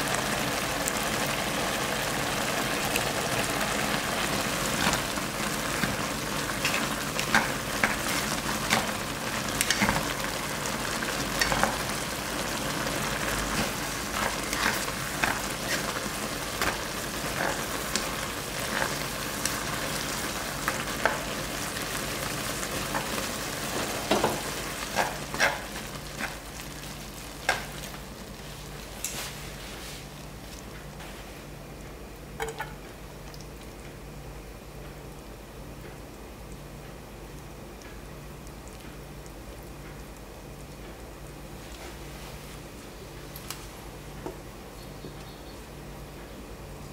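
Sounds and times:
noodles sizzling in a frying pan: 0.0 - 31.2.

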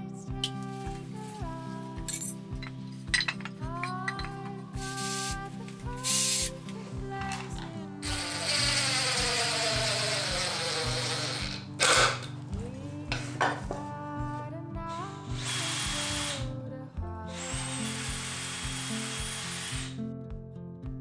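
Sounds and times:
cordless driver driving screws: 7.3 - 12.3, 15.3 - 16.4, 17.3 - 20.0.

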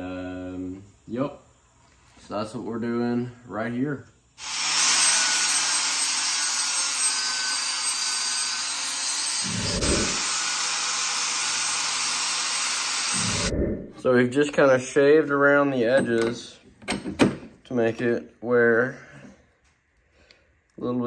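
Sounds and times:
angle grinder grinding steel: 4.4 - 13.5.

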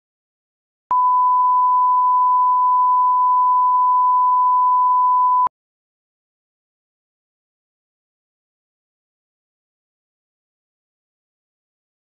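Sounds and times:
pure test tone: 0.9 - 5.5.

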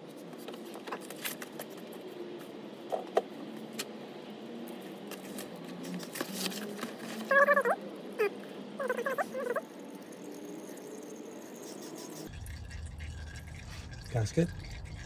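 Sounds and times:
squeaky chirp: 7.3 - 9.7.

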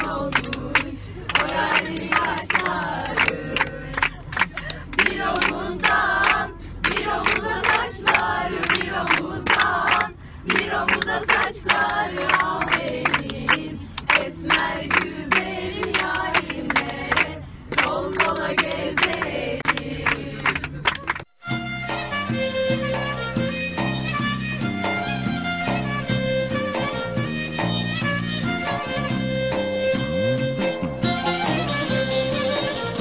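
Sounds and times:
girls singing together: 0.0 - 4.1, 5.0 - 20.4
hands clapping in time: 0.3 - 21.3.

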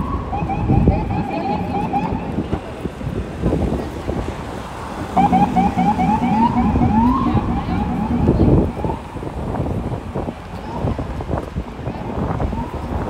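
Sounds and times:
emergency siren yelping: 0.0 - 2.6, 5.0 - 9.4
city traffic noise: 0.0 - 13.0.

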